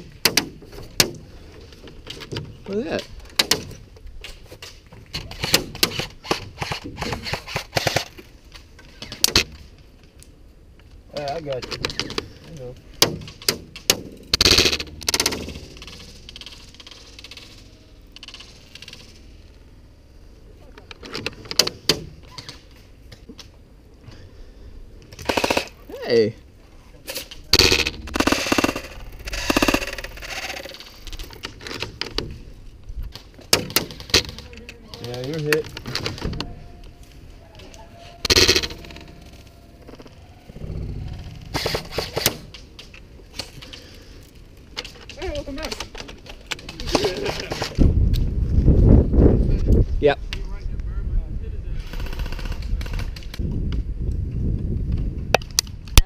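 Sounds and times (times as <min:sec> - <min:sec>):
airsoft gunfire: 0:27.7 - 0:30.4.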